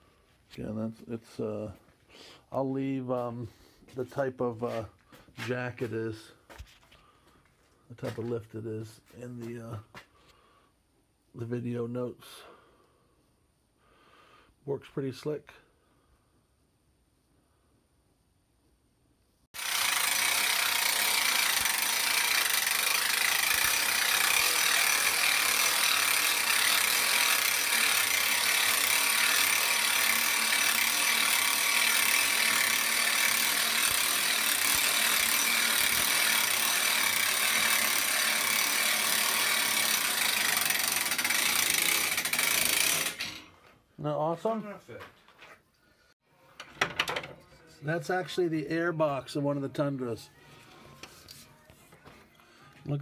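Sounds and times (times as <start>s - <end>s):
hand-crank winch ratcheting: 19.6s - 43.5s.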